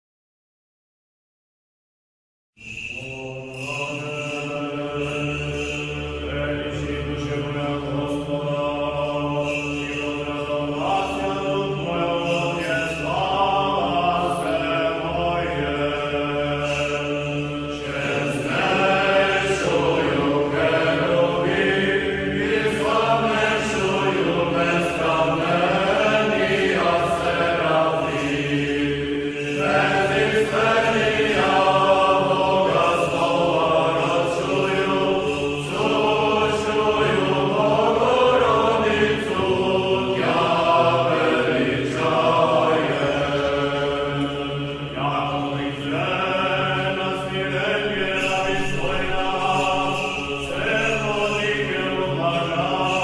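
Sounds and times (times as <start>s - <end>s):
voices chanting melodic line: 17.3s - 48.1s.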